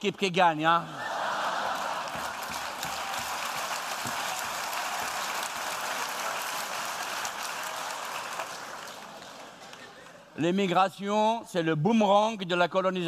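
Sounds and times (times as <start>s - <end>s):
audience applauding: 1.0s - 10.4s.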